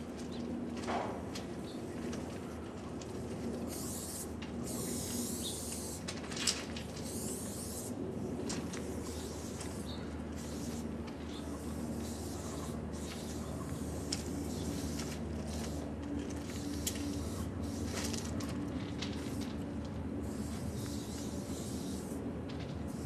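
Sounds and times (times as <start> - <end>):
steady low hum: 0.0 - 23.0
spray paint can hissing: 3.6 - 6.1, 6.8 - 8.0, 8.6 - 18.4, 19.1 - 19.4, 20.2 - 22.2.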